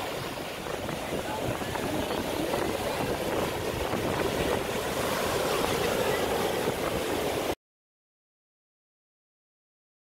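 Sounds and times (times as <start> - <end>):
surf breaking on sand: 0.0 - 7.6
wind buffeting microphone: 0.0 - 7.6.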